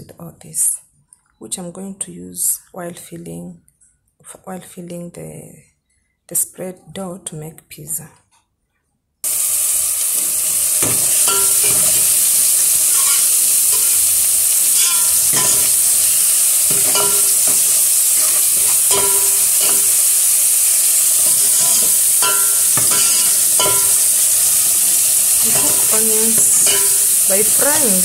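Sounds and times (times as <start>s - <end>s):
onions sizzling in hot oil: 9.2s - 28.0s
metal spoon scraping a pot: 11.1s - 14.1s, 14.7s - 27.2s.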